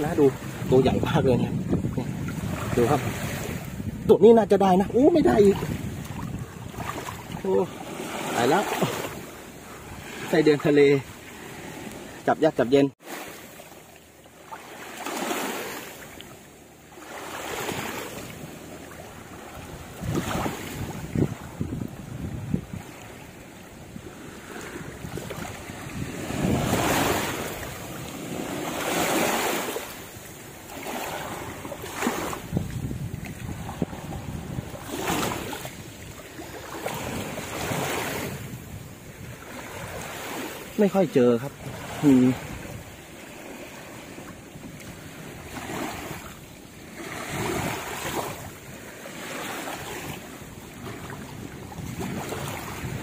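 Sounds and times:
wind rumbling on microphone: 0.0s - 12.2s, 17.5s - 48.9s, 49.7s - 53.0s
sea waves washing up a beach: 0.0s - 53.0s.

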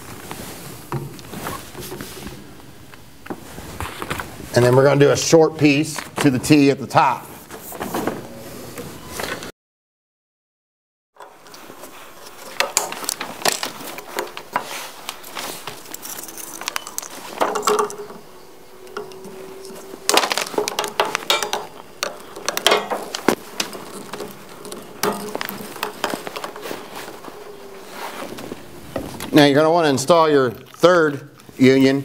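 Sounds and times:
drawn-out squeak: 15.2s - 29.7s.

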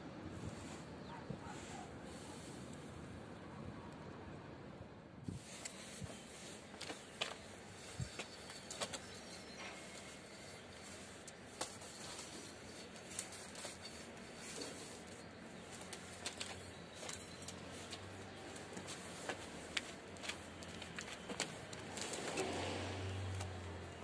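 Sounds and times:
faint steady background noise: 0.0s - 24.0s
cable clicking and rustling: 5.4s - 23.8s.

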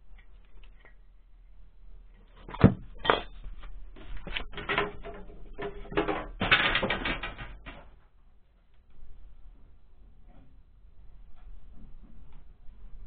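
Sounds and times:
clattering knocks and scrapes: 2.2s - 8.1s.

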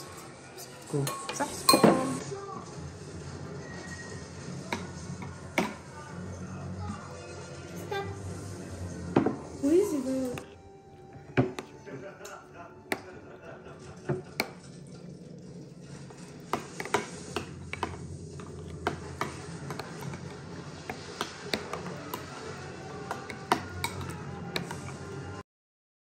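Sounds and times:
metal spoon stirring in a bowl: 14.2s - 25.2s.

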